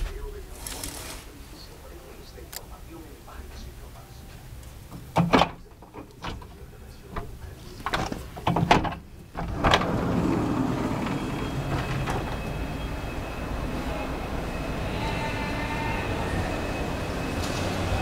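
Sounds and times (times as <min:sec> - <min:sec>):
sliding glass door opening: 0:00.5 - 0:01.3, 0:07.9 - 0:13.4.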